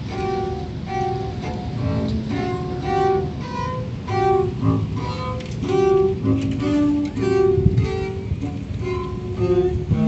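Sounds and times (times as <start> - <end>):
bowed double bass: 0.0 - 10.0.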